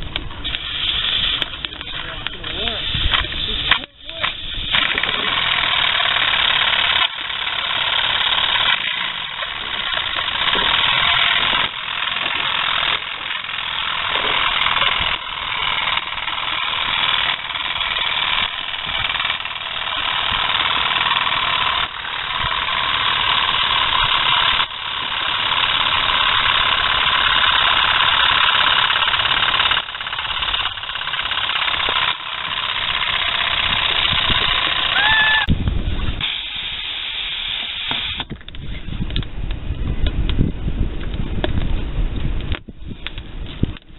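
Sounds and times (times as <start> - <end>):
steam hissing: 0.4 - 1.6, 36.2 - 38.3.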